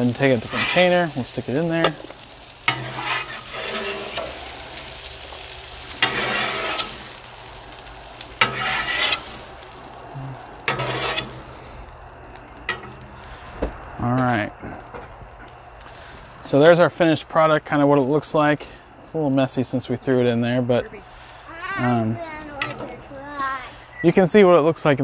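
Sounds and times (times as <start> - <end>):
metal spatula scraping griddle: 0.0 - 11.7, 12.7 - 13.2, 22.6 - 23.1
food sizzling: 0.0 - 25.0.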